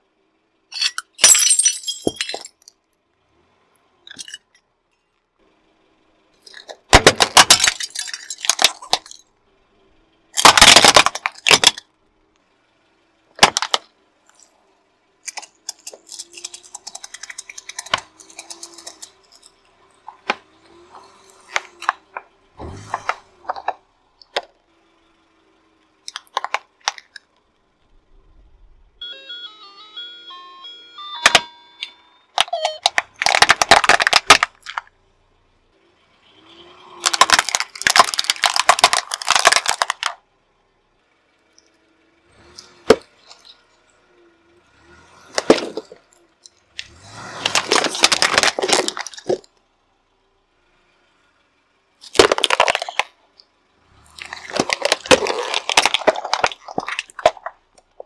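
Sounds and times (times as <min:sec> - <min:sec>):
car tyre crushing hard objects: 0:06.4 - 0:09.4, 0:10.2 - 0:12.0, 0:13.3 - 0:24.6, 0:25.9 - 0:27.8, 0:32.4 - 0:35.0, 0:36.3 - 0:40.3, 0:42.3 - 0:43.8, 0:44.7 - 0:49.8, 0:52.0 - 0:58.0
cracking and clinking of breaking objects: 0:06.5 - 0:09.2, 0:10.4 - 0:11.8, 0:32.7 - 0:34.9, 0:37.0 - 0:40.2, 0:47.4 - 0:49.5, 0:52.0 - 0:53.1, 0:54.1 - 0:58.0.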